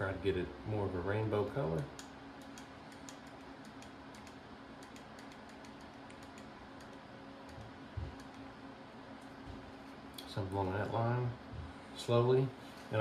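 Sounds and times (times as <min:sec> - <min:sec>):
computer fans humming: 0:00.0 - 0:13.0.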